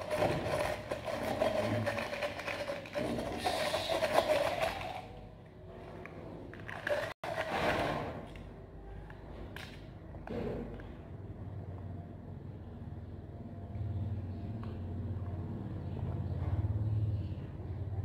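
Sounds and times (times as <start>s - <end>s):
straw scraping in plastic cup: 0.0s - 5.1s.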